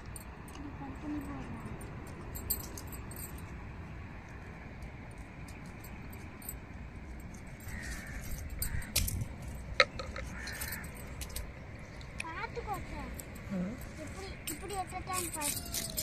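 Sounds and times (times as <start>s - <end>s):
glass bangles clinking: 0.0s - 3.7s, 5.4s - 12.0s, 13.0s - 16.0s
steady low rumble: 0.0s - 16.0s.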